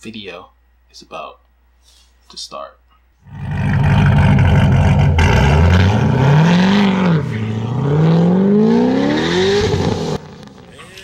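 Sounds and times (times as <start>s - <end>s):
car engine accelerating hard: 3.2s - 10.7s.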